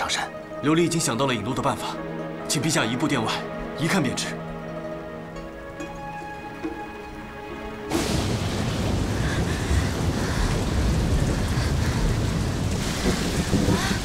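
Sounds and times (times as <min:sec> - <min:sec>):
soft drama score: 0:00.0 - 0:14.0
heavy torrential downpour: 0:06.3 - 0:14.0
low thunder rumble: 0:07.9 - 0:14.0.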